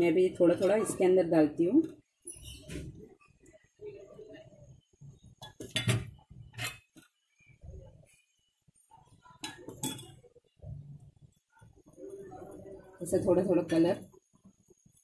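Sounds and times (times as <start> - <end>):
utensils clinking against dishes: 9.4 - 10.2.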